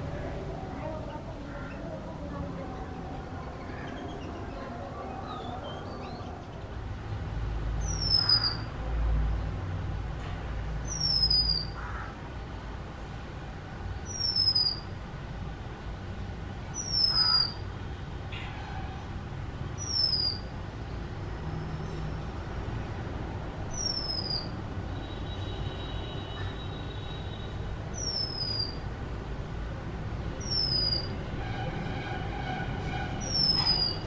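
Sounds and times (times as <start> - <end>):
bird whistling calls: 10.9 - 11.7, 14.1 - 14.8, 16.8 - 17.6, 19.8 - 20.4, 23.7 - 24.5, 28.0 - 28.8, 30.4 - 31.1, 33.2 - 34.0.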